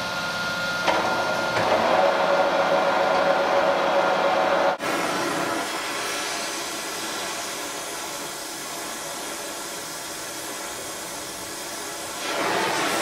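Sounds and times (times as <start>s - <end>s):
gas torch flame hissing: 4.8s - 13.0s.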